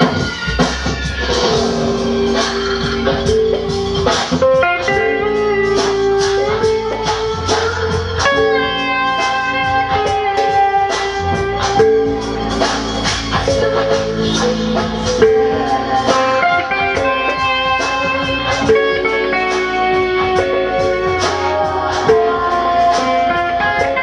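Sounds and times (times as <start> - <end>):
percussive beat: 0.0 - 24.0.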